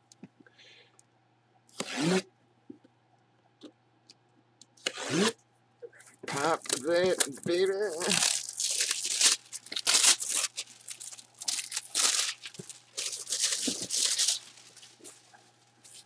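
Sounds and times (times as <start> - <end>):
plastic bag crinkling: 6.3 - 16.0
cardboard box tearing: 11.4 - 15.1.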